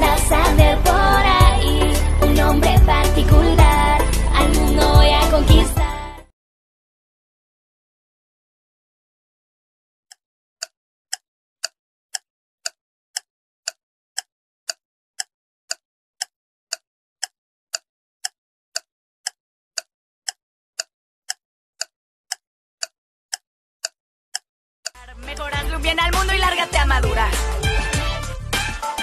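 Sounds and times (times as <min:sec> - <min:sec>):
clock-like timer ticks: 0:00.0 - 0:05.8, 0:10.1 - 0:27.3.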